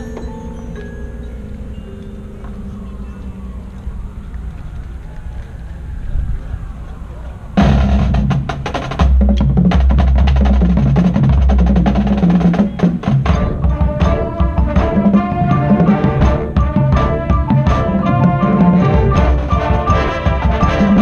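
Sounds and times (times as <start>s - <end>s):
deep low drum beats: 7.6s - 21.0s
marching band playing: 7.6s - 21.0s
rapid sharp drum strikes: 7.6s - 21.0s.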